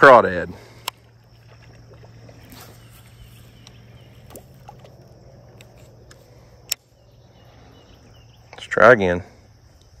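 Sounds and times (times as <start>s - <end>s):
fishing tackle clicks and taps: 3.6s - 6.8s.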